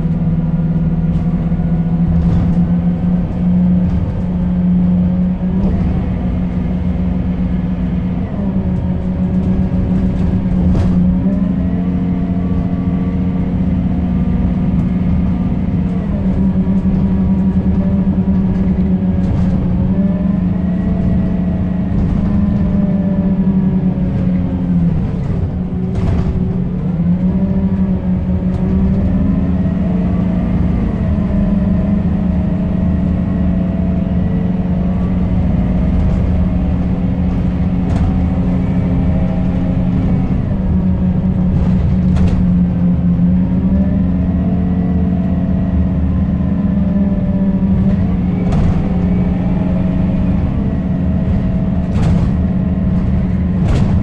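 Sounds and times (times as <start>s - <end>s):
bus diesel engine drone: 0.0s - 54.0s
engine whine rising and falling: 0.0s - 54.0s.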